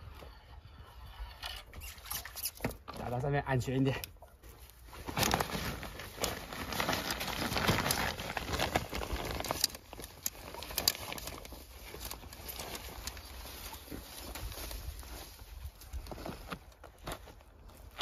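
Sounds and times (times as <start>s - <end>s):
nylon mesh net rustling: 4.5s - 18.0s.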